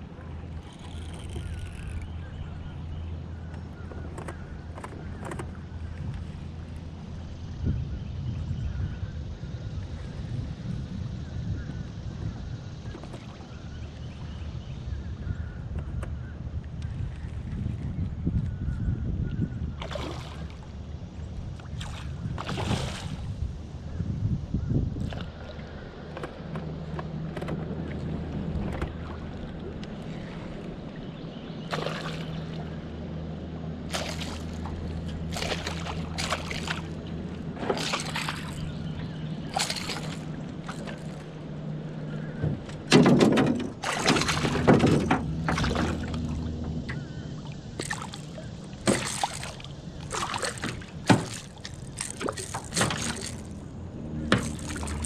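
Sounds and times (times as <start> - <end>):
steady low hum: 0.0 - 55.0
fish thrashing and splashing: 19.8 - 20.6, 21.7 - 23.2, 31.7 - 32.5, 33.8 - 41.3, 42.9 - 46.5, 47.4 - 55.0.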